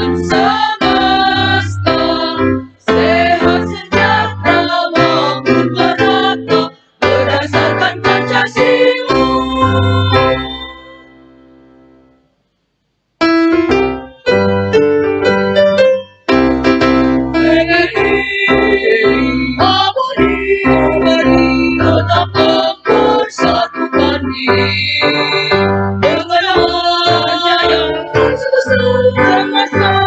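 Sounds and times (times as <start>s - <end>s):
choir singing: 0.0s - 11.3s, 17.4s - 30.0s
keyboard accompaniment: 0.0s - 12.4s, 13.2s - 30.0s.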